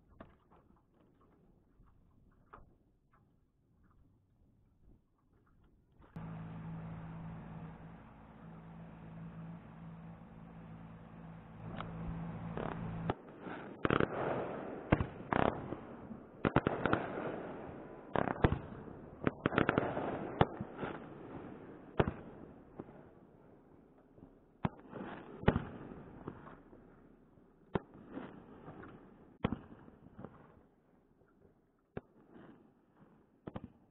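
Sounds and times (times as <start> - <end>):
low steady hum: 6.2 - 13.2
distant fireworks bangs and crackling: 6.2 - 23.0, 24.6 - 26.8, 27.7 - 30.6.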